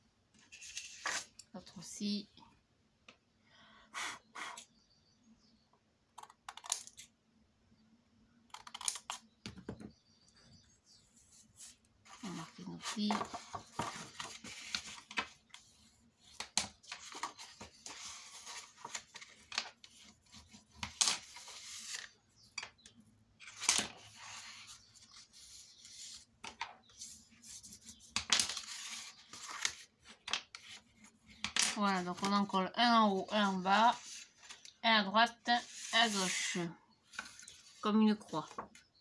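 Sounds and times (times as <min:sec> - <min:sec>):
card paper rustling and sliding: 0:00.4 - 0:01.4, 0:35.6 - 0:37.8.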